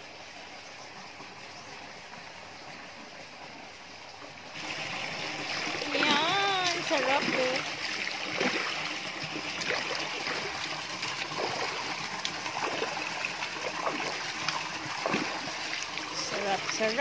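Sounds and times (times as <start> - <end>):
water pouring from an inlet pipe: 4.4 - 17.0
feet splashing in pool water: 4.6 - 17.0.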